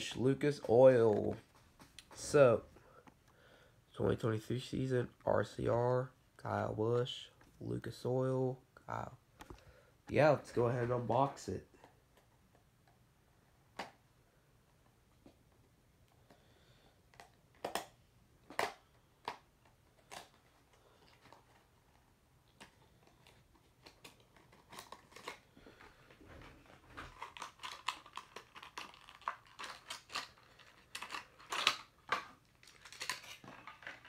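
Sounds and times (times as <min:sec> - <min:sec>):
packaging crinkling and rustling: 0:17.2 - 0:34.0.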